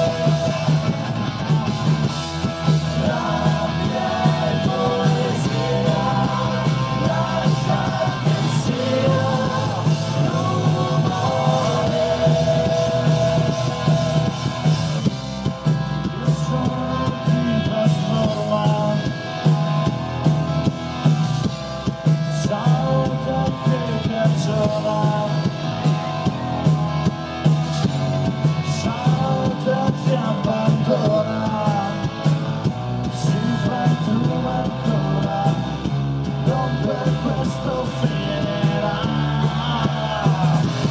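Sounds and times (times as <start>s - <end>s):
bass guitar: 0.0s - 40.9s
drum kit: 0.0s - 40.9s
electric guitar: 0.0s - 40.9s
person singing: 2.8s - 14.7s.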